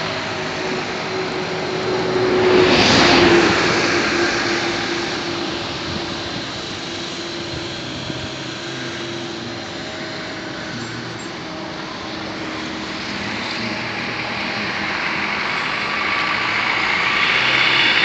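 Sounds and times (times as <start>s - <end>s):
street noise hiss: 0.0s - 18.0s
vehicle engine running: 0.0s - 18.0s.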